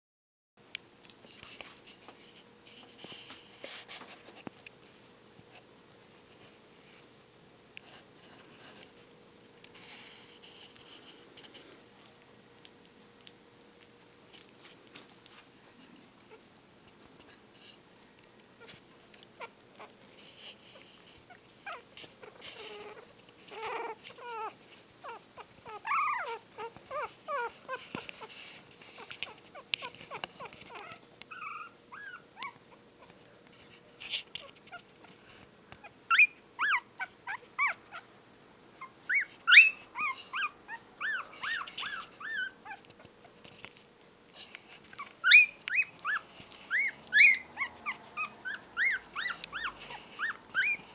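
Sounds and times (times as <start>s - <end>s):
puppies whimpering: 19.4s - 32.8s, 35.8s - 38.1s, 38.8s - 43.3s, 44.9s - 50.9s.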